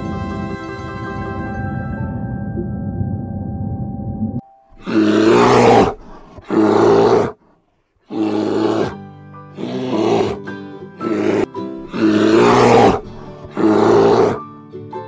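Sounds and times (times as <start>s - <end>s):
bear roaring: 4.8s - 7.4s, 8.1s - 9.0s, 9.6s - 10.4s, 11.0s - 14.4s.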